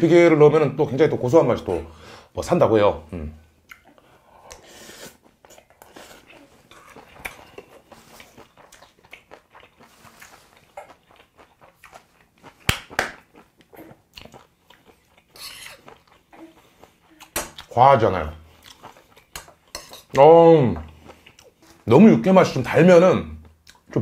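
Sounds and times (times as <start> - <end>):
close chewing with mouth clicks: 3.6 - 17.8, 18.4 - 20.2, 20.8 - 21.9, 23.4 - 24.0
metal spoon scraping bowl: 19.7 - 20.1.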